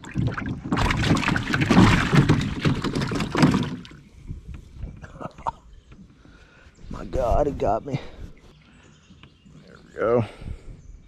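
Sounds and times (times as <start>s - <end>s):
water splashing beside boat: 0.0s - 4.2s.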